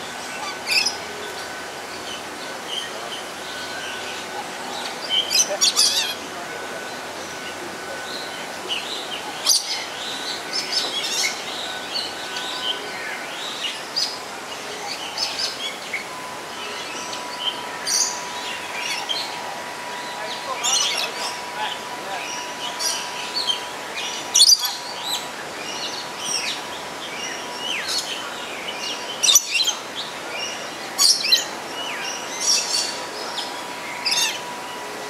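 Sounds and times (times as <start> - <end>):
birds chirping: 0.0 - 35.0
steady background hiss: 0.0 - 35.0.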